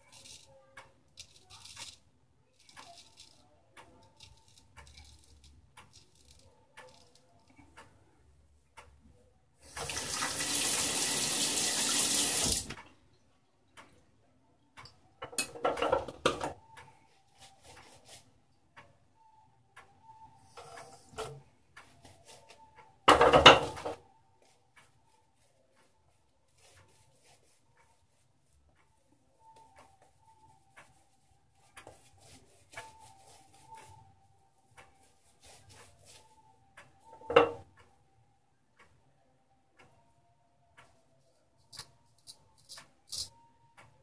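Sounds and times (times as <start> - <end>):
clock ticking: 0.0 - 9.9, 13.7 - 14.1, 14.8 - 17.0, 18.7 - 41.1, 41.7 - 44.0
water splashing in sink: 9.8 - 12.8.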